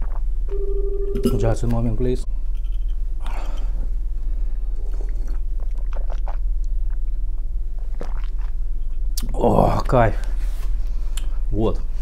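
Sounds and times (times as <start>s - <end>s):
low hum: 0.0s - 7.8s
person chewing: 4.8s - 9.4s
sips and gulps: 4.8s - 9.9s.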